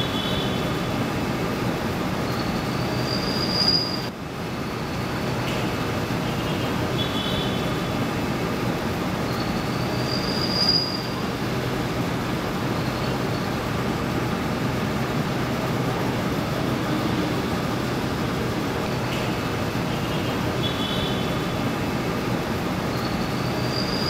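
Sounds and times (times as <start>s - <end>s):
rumbling vehicle noise: 0.0s - 24.0s
high squeal: 2.2s - 5.2s, 9.2s - 11.4s, 12.6s - 13.7s, 22.9s - 24.0s.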